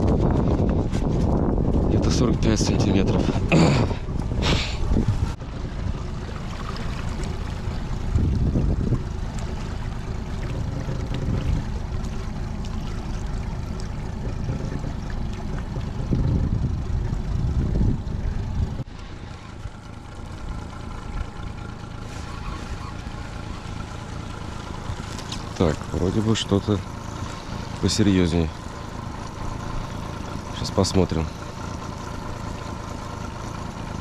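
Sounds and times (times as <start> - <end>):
wind noise on microphone: 0.0 - 3.5, 4.2 - 5.4, 8.0 - 9.2, 14.2 - 18.9
outboard motor running: 0.0 - 34.0.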